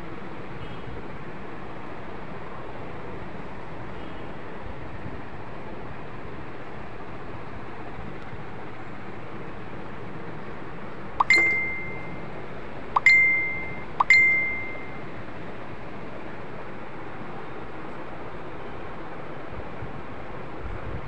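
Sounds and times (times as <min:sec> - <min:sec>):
short bell-like dings: 0:11.2 - 0:12.2, 0:13.0 - 0:15.0.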